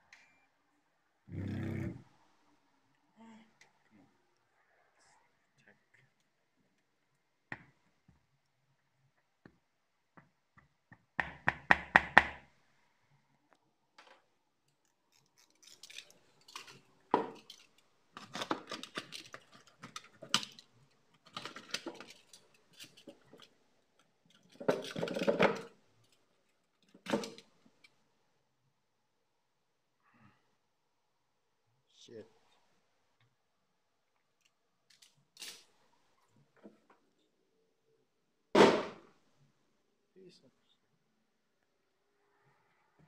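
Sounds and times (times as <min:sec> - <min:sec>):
screwdriver clinking on plastic: 0:15.6 - 0:23.5, 0:26.8 - 0:27.9.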